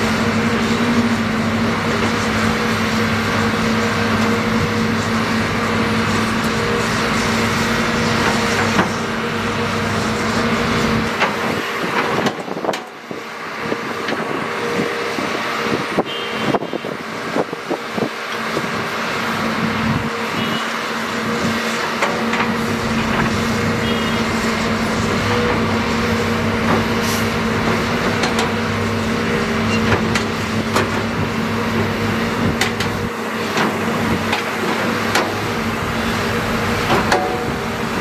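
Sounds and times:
excavator diesel engine running: 0:00.0 - 0:38.0.

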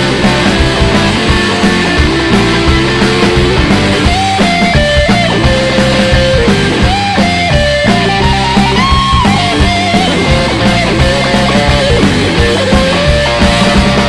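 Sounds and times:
drum hits: 0:00.0 - 0:14.0
electric guitar melody: 0:00.0 - 0:14.0.

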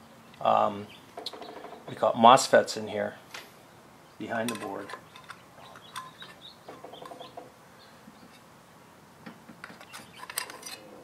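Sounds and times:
faint clicks and handling noise: 0:04.4 - 0:06.4.

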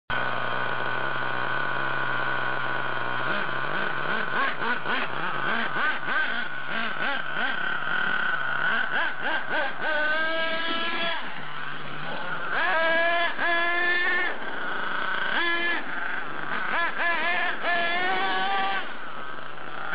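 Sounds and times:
toy truck motor revving: 0:00.1 - 0:19.9.

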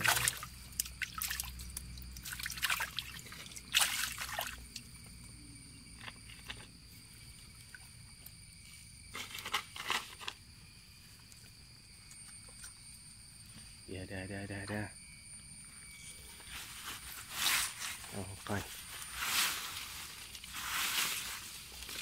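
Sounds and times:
water splashing and sloshing: 0:00.0 - 0:05.0
water trickling: 0:00.0 - 0:05.2.

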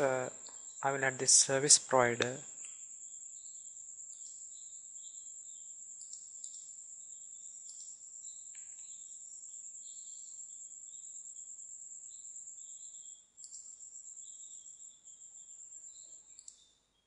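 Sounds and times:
insects trilling and chirping: 0:00.0 - 0:01.8, 0:02.5 - 0:17.0.

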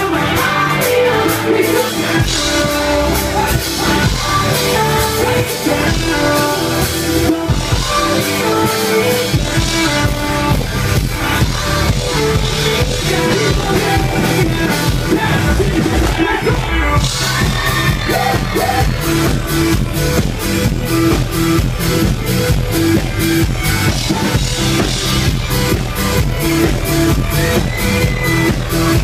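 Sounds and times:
man singing: 0:00.0 - 0:19.8
pop-rock band playing: 0:00.0 - 0:29.0.

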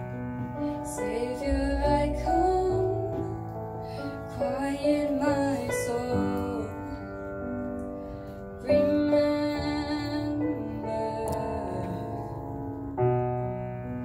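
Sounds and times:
piano accompaniment: 0:00.0 - 0:14.0
girl singing into microphone: 0:00.6 - 0:03.5, 0:04.1 - 0:07.4, 0:08.2 - 0:12.4.

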